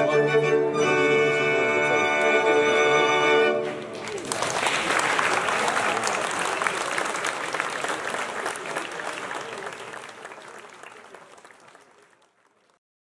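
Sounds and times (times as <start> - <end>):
audience applauding: 3.7 - 12.8.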